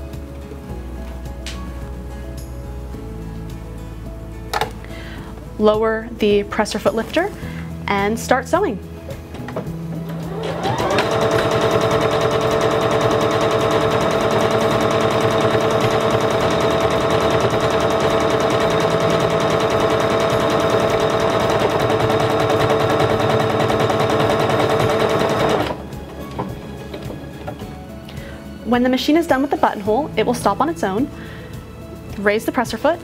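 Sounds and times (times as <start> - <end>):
sewing machine stitching: 10.1 - 25.8.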